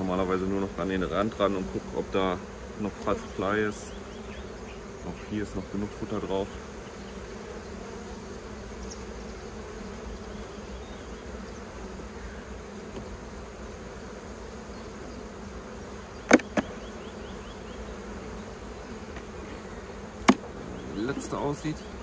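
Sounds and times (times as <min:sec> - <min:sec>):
honeybees buzzing: 0:00.0 - 0:22.0
sharp knocks: 0:16.3 - 0:16.7, 0:20.2 - 0:20.6.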